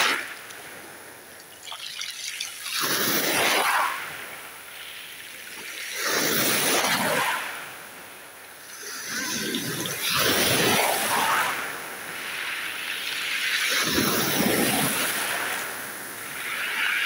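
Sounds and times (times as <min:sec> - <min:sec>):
soft hiss of water: 0:00.0 - 0:07.3
small waves washing in: 0:00.0 - 0:17.0.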